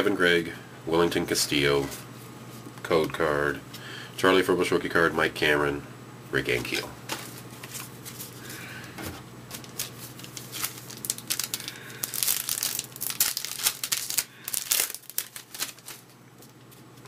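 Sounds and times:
wrapper tearing and crinkling: 9.5s - 17.0s.

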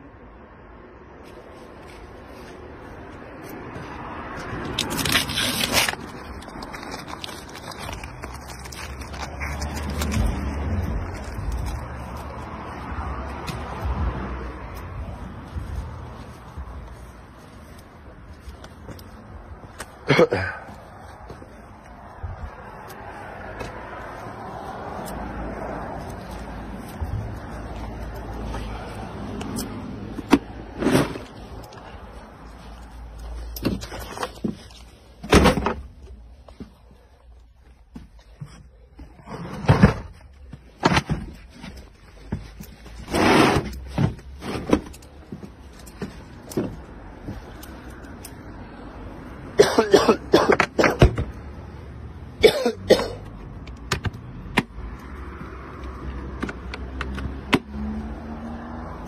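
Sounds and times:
person coughing: 20.0s - 20.8s, 49.6s - 51.1s, 52.4s - 53.3s
sharp clicks and knocks: 56.2s - 57.7s.

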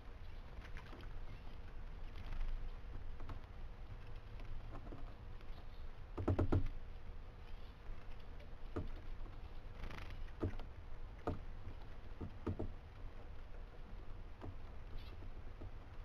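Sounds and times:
woodpecker tapping on wood: 6.2s - 6.8s, 8.7s - 9.4s, 10.2s - 12.8s.

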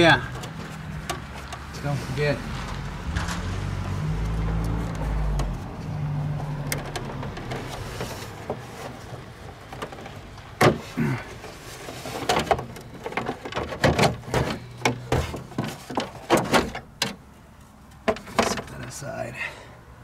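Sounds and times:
plastic panel clacking: 6.6s - 17.2s, 18.0s - 18.7s.

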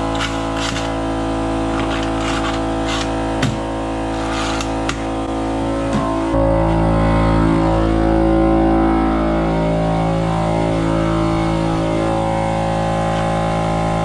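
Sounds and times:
air compressor running: 0.0s - 8.2s.

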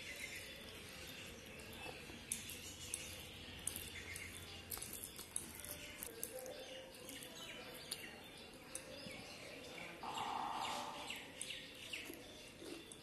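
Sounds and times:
birds chirping: 0.0s - 13.0s
fingers squishing food: 1.5s - 8.9s.

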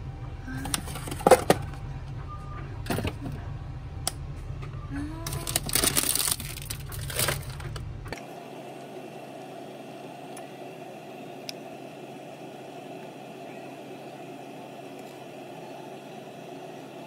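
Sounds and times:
steady low hum: 0.0s - 17.0s
loud cracking and crunching clicks: 5.3s - 7.8s.

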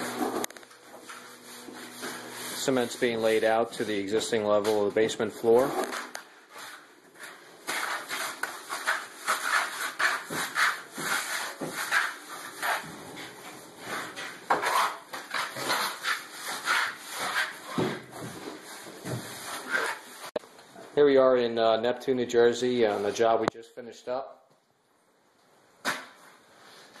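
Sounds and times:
tools scraping wet cement: 0.0s - 18.0s, 19.5s - 20.4s.

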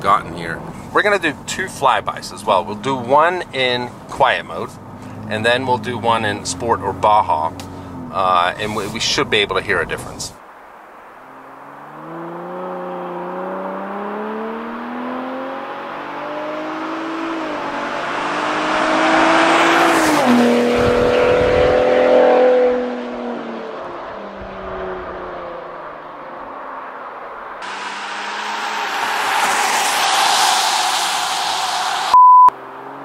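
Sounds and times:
truck accelerating past: 11.2s - 25.8s, 27.5s - 33.0s.

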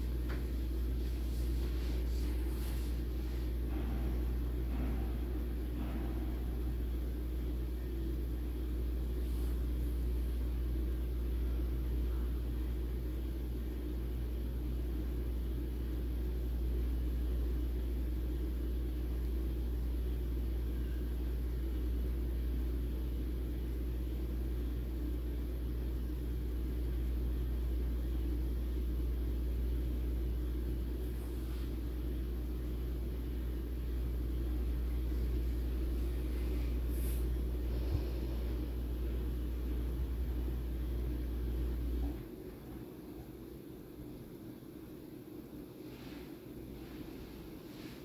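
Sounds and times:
steady low rumble: 0.0s - 14.4s, 26.6s - 44.8s.

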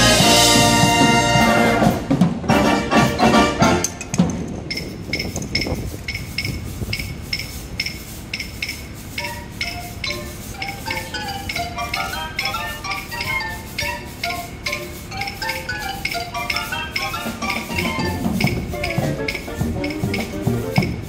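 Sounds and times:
brass chords: 0.0s - 4.1s
drums: 0.0s - 21.0s
mallet percussion notes: 0.0s - 21.0s
percussion tapping: 3.2s - 21.0s.

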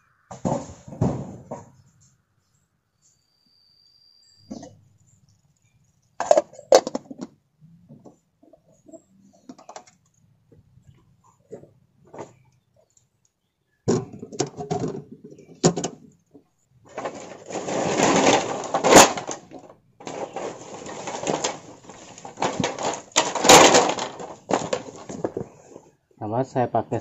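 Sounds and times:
rustling and scraping: 0.3s - 3.2s, 13.9s - 26.0s.

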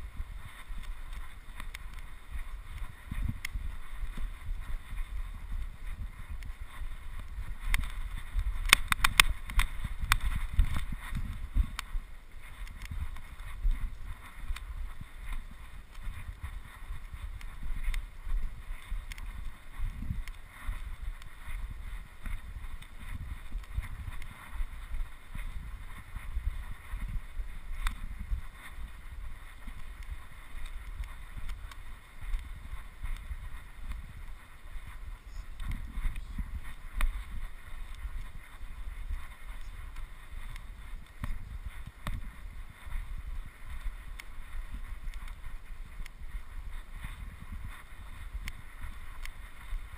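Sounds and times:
wind buffeting microphone: 0.0s - 49.9s
sharp clicks: 6.3s - 11.9s.

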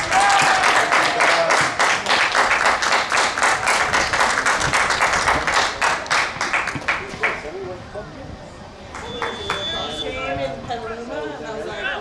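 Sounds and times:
people clapping: 0.0s - 7.5s, 8.9s - 9.8s.

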